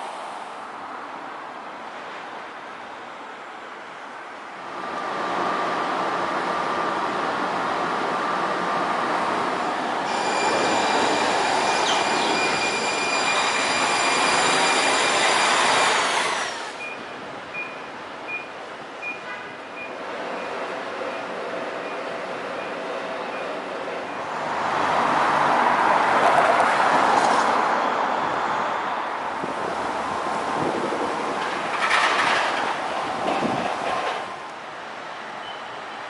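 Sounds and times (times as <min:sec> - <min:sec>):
street noise: 0:00.0 - 0:36.0
train passing: 0:04.6 - 0:16.9.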